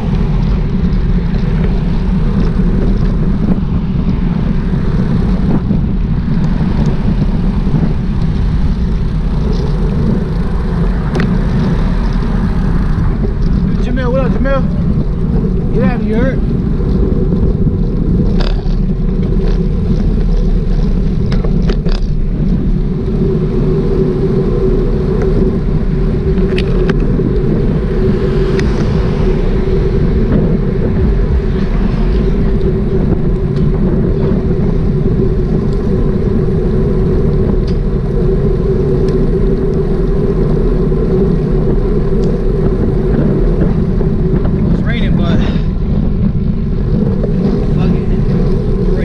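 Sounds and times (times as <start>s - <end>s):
motorcycle engine drone: 0.0s - 49.0s
wind rushing over microphone: 0.0s - 49.0s.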